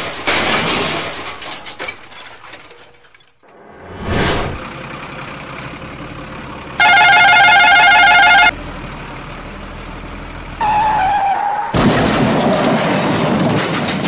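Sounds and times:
warbling electronic ringing tone: 6.8s - 8.5s.

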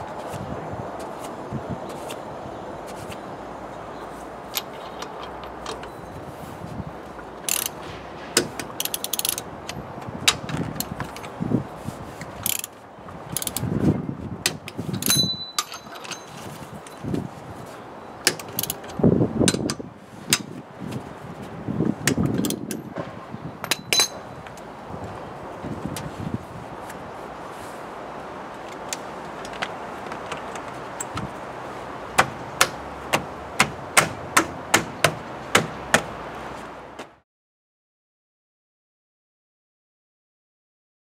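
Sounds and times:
ratchet wrench clicking: 7.5s - 7.8s, 8.7s - 9.5s, 12.4s - 13.7s, 18.3s - 18.9s
metal socket clinks: 15.0s - 17.0s, 23.6s - 24.2s.

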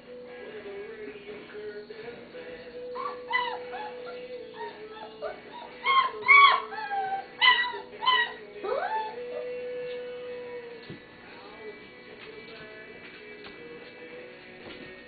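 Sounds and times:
soft background music: 0.0s - 15.0s
puppies whimpering and squealing: 2.8s - 10.2s.

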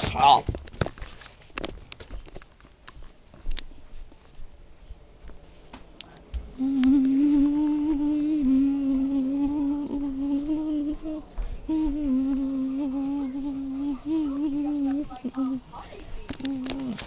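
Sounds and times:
person humming low note: 6.5s - 15.6s.

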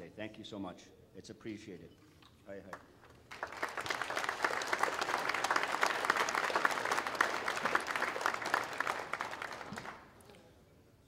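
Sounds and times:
audience applauding: 3.3s - 10.2s.

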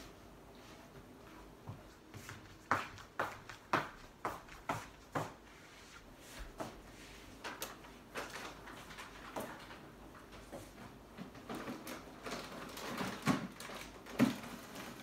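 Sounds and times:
footsteps on wooden floor: 0.9s - 7.0s.

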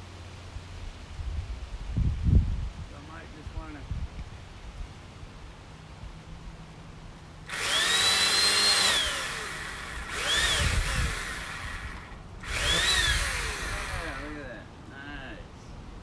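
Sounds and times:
electric chainsaw motor whining: 7.5s - 14.5s.

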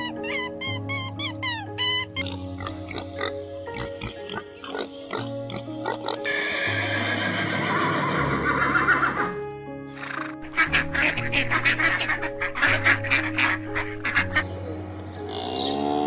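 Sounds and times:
light background music: 0.0s - 16.0s
horse whinny: 6.2s - 10.4s
ducks quacking: 10.0s - 14.5s.

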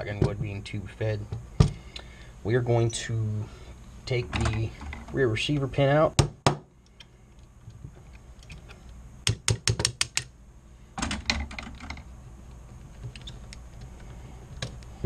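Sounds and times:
hammer tapping a punch: 9.2s - 10.3s.

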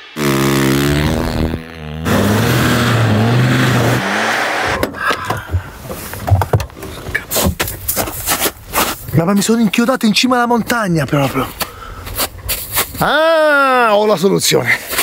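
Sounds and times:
car engine revving: 0.0s - 5.0s
wheels spinning in snow: 0.3s - 4.8s
knocks and rustles: 4.8s - 9.1s.

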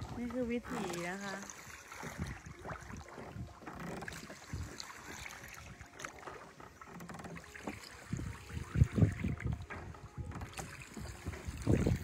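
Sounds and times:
wind buffeting microphone: 2.0s - 5.9s, 8.0s - 12.0s.

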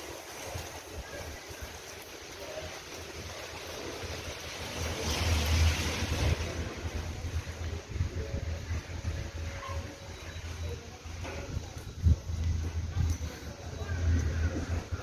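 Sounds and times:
steady outdoor hiss: 0.0s - 15.0s
wind buffeting microphone: 4.1s - 15.0s.

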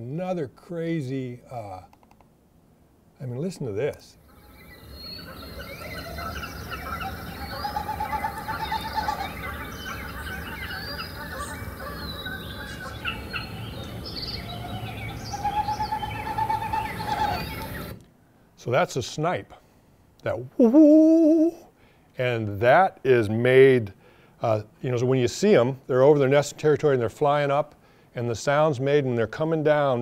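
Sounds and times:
birds chirping and trilling: 4.2s - 18.0s
snipe winnowing whoo: 4.4s - 18.0s.

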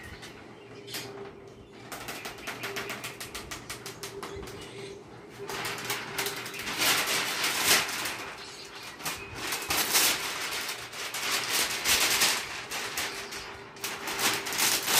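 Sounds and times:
bird calls: 0.0s - 11.6s.

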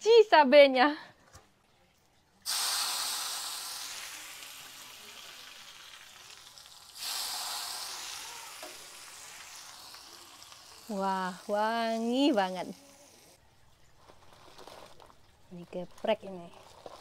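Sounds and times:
hot oil sizzling: 2.4s - 13.4s.

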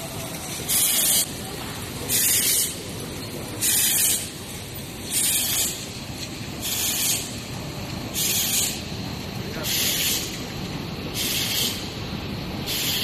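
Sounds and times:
machinery running low noise: 0.0s - 13.0s
compressed air hiss bursts: 0.7s - 1.3s, 2.1s - 2.8s, 3.6s - 4.4s, 5.1s - 5.9s, 6.6s - 7.5s, 8.1s - 8.9s, 9.6s - 10.4s, 11.1s - 12.0s, 12.6s - 13.0s.

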